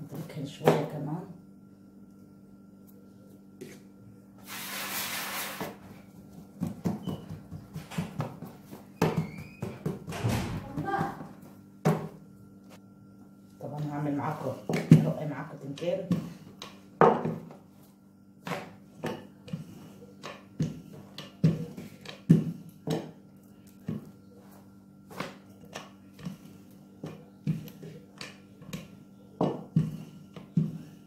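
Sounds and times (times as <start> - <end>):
rolling pin rolling dough: 3.6 - 12.8, 13.6 - 31.0
rolling pin knocking on table: 29.4 - 30.8.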